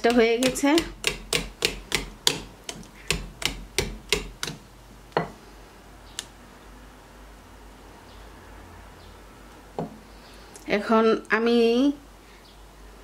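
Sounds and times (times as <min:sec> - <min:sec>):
wire whisk clicking against bowl: 0:00.0 - 0:04.6.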